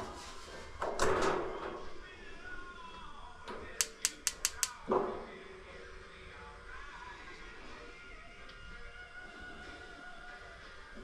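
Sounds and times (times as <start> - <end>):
piezo igniter clicking: 3.8 - 4.8.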